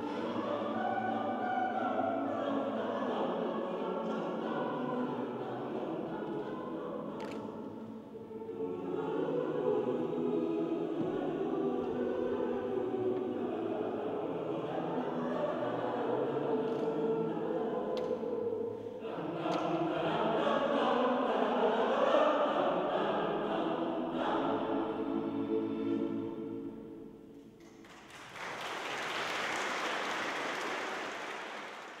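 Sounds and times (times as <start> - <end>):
choir singing unaccompanied: 0.0 - 27.6
audience applause: 27.8 - 32.0.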